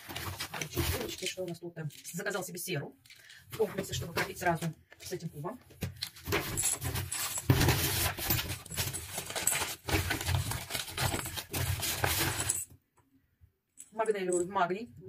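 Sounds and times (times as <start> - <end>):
packing paper rustling: 0.0 - 1.2, 5.9 - 12.6.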